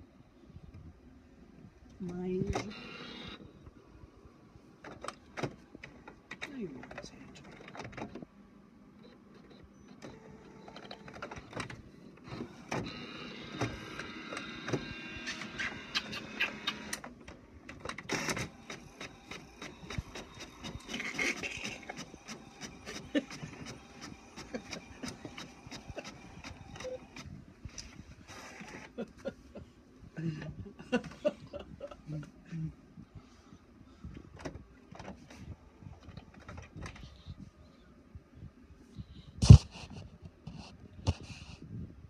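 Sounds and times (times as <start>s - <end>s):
printer motor whirring: 2.5s - 3.4s, 9.0s - 27.3s.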